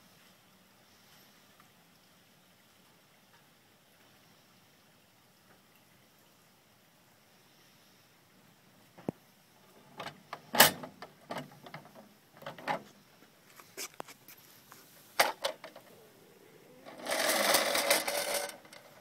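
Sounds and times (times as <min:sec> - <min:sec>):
dense rattle: 0:16.8 - 0:19.0
metal toy truck knocking and clicking: 0:16.9 - 0:19.0.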